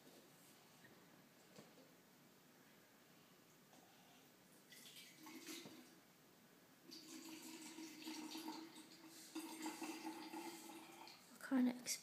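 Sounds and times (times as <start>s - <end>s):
water pouring into flask: 4.7s - 5.9s, 6.9s - 11.3s.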